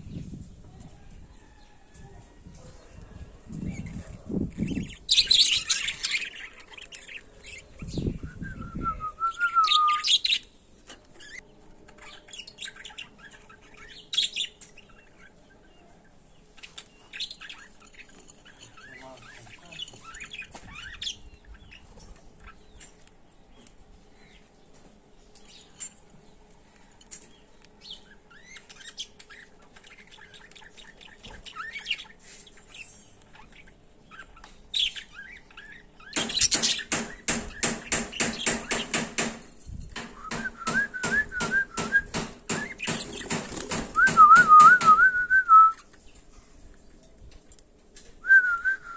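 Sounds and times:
budgerigars chirping and chattering: 3.5s - 8.2s, 11.2s - 24.5s, 27.1s - 39.4s, 40.0s - 43.8s.

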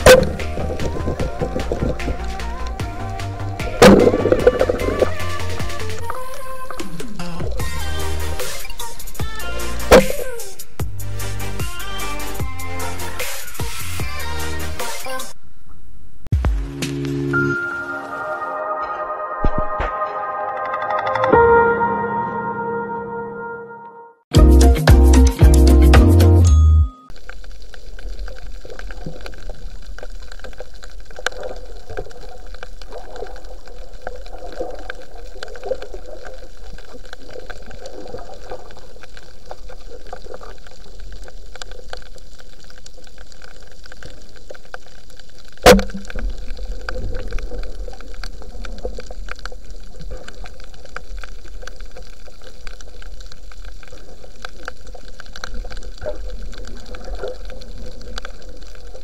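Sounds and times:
underwater hiss and rumble: 0.0s - 14.7s, 27.1s - 59.0s
faint crackling ticks: 27.1s - 59.0s.

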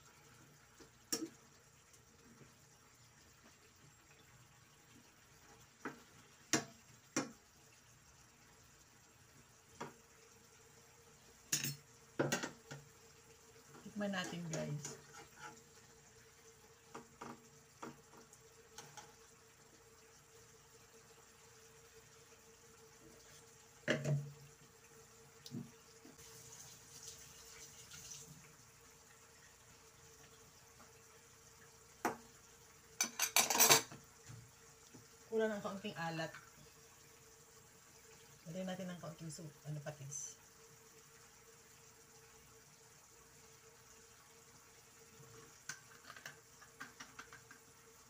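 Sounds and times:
sauce simmering in a pan: 0.0s - 48.0s
spatula scraping a frying pan: 14.8s - 15.8s.

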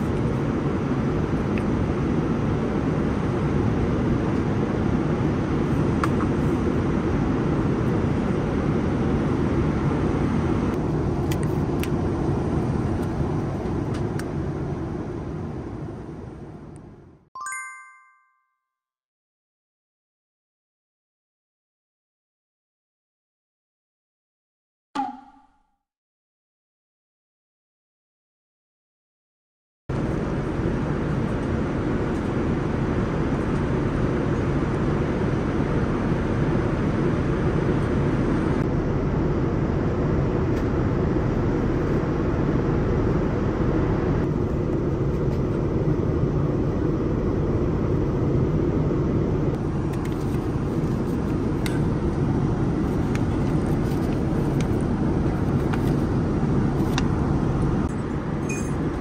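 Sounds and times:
airliner cabin rumble: 0.0s - 17.2s, 29.9s - 59.0s.

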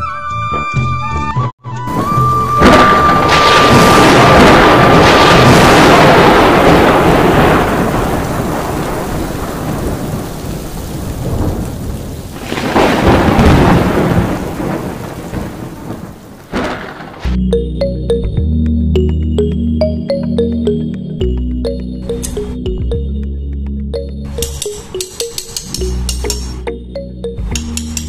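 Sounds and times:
rain: 1.9s - 17.4s
rolling thunder: 1.9s - 17.4s.

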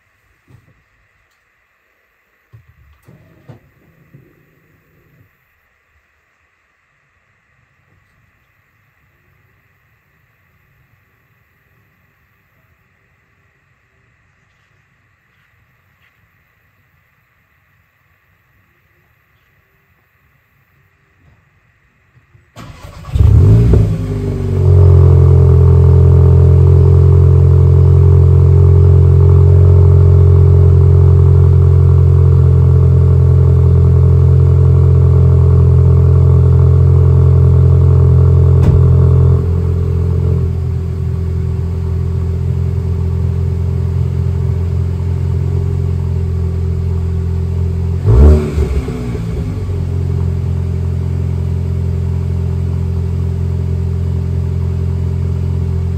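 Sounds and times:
car engine starting and idling: 22.5s - 55.9s.

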